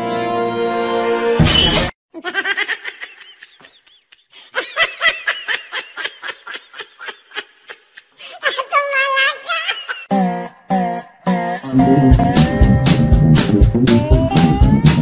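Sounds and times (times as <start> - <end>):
high-pitched laughter: 2.1 - 10.1.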